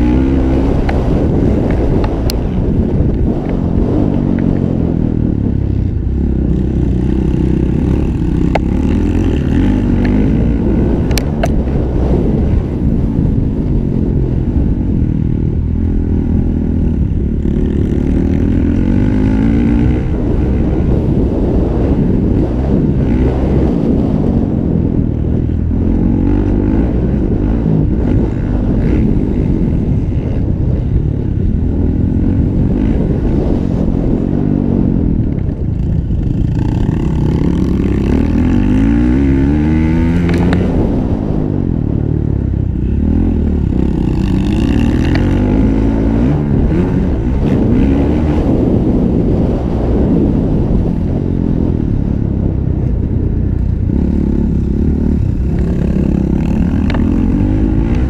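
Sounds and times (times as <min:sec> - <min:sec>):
motocross bike engine revving: 0:06.0 - 0:11.7, 0:16.0 - 0:24.5, 0:35.8 - 0:41.8, 0:42.8 - 0:49.2, 0:53.7 - 0:58.0.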